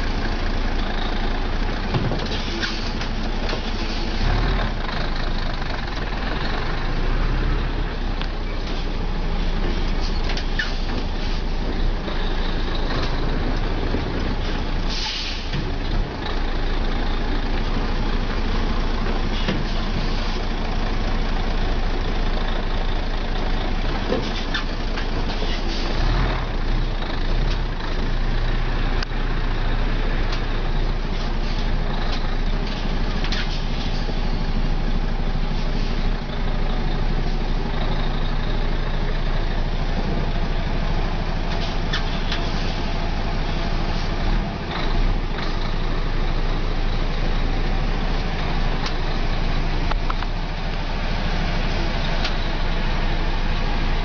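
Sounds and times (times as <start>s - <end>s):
truck diesel engine at low revs: 0.0s - 54.0s
short hisses: 14.9s - 15.5s.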